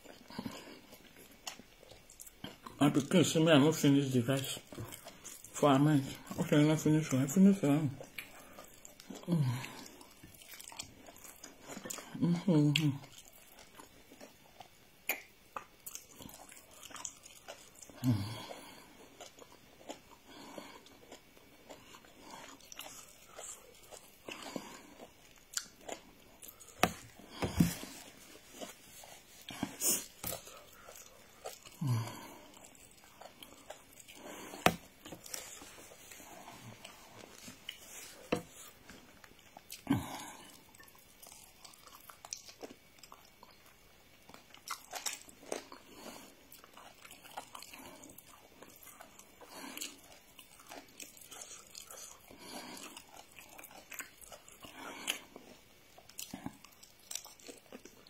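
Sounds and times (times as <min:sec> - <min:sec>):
chewing: 0:00.0 - 0:58.0
lip smacks: 0:15.0 - 0:16.0.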